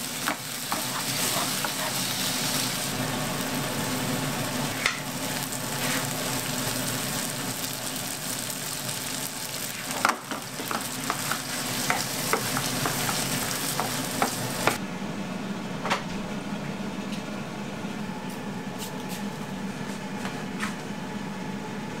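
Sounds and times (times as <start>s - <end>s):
food sizzling in a frying pan: 0.0s - 14.8s.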